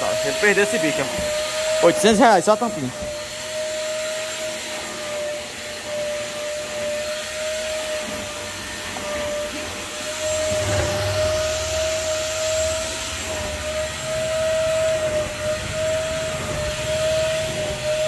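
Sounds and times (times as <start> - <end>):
vacuum cleaner motor whine: 0.0 - 18.0
deeper rush: 10.2 - 13.6.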